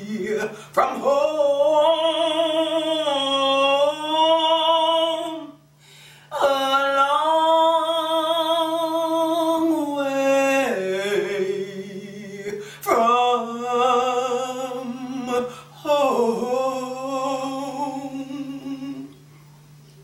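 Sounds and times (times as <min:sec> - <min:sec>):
woman singing unaccompanied: 0:00.0 - 0:05.6, 0:06.3 - 0:19.3
woman breathing: 0:05.7 - 0:06.3, 0:15.5 - 0:15.8.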